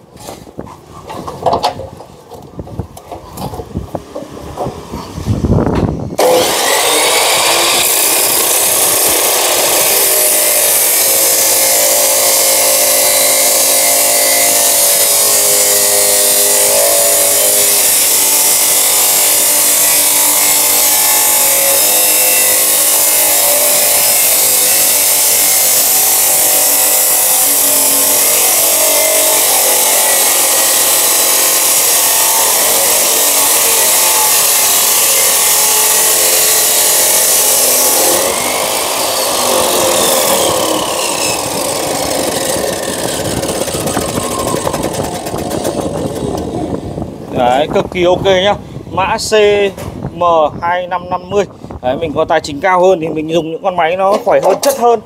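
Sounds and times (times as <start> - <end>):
cut-off saw grinding steel: 6.2 - 46.8.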